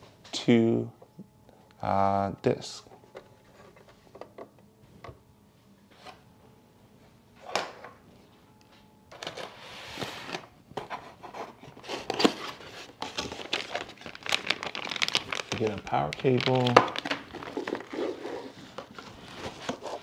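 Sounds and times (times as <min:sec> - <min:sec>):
cardboard rustling and scraping: 0:16.5 - 0:20.0.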